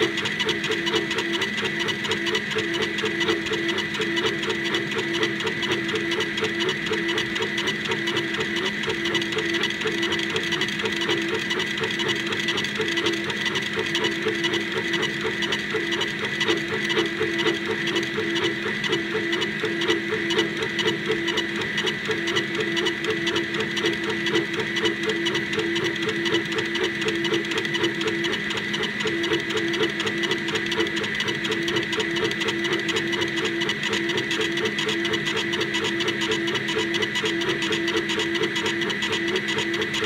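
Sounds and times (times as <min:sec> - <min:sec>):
laser engraver motor whine: 0:00.0 - 0:40.0.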